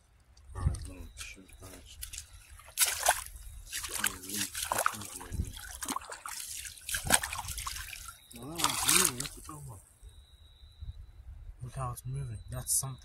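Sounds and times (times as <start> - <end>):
feet wading through shallow water: 0.6 - 9.7.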